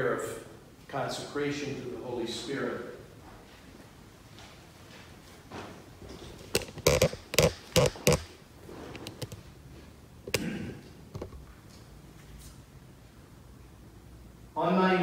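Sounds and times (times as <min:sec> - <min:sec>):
sharp knocks and thumps: 0:06.4 - 0:08.4.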